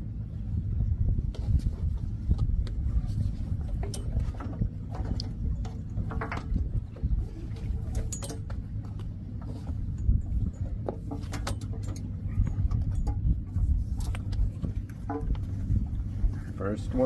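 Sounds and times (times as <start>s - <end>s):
steady low rumble: 0.0s - 17.0s
metal fittings clinking: 7.8s - 8.6s.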